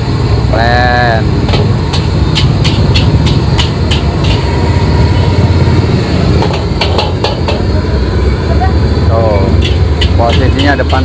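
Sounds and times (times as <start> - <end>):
gas burner rumble: 0.0 - 11.0
metal spatula scraping wok: 1.5 - 8.5, 9.3 - 11.0.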